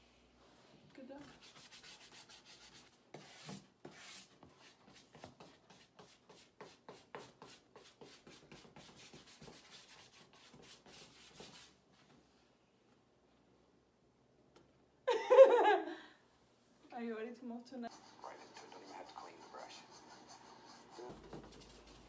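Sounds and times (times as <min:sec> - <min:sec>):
paintbrush scrubbing on canvas: 0:01.2 - 0:11.8, 0:17.9 - 0:22.0.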